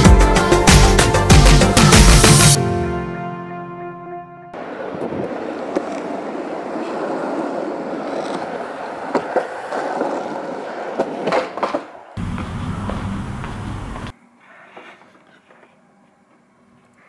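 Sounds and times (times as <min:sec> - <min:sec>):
wheels rolling over asphalt: 0:04.6 - 0:14.1.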